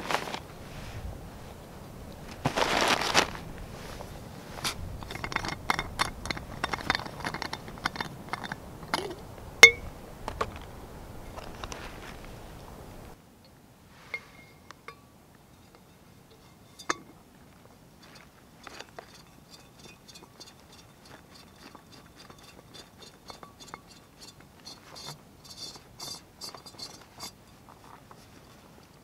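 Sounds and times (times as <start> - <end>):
small clicks and scrapes: 4.5 - 9.2, 11.3 - 12.4, 18.0 - 29.0.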